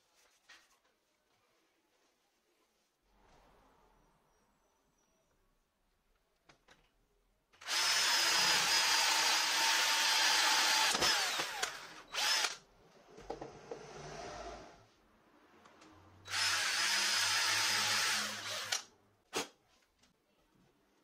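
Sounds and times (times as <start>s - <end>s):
electric drill boring into plywood: 7.6s - 12.6s, 16.3s - 18.9s.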